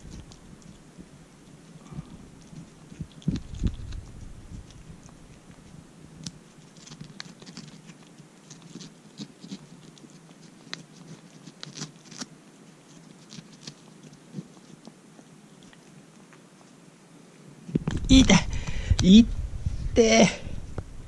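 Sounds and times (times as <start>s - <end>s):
kitten licking wet clicks: 0.1s - 12.2s
low thumps: 17.7s - 21.0s.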